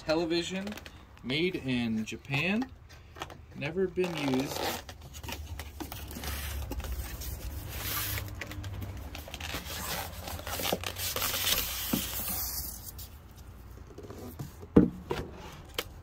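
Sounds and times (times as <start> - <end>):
cardboard box scraping: 4.2 - 8.3.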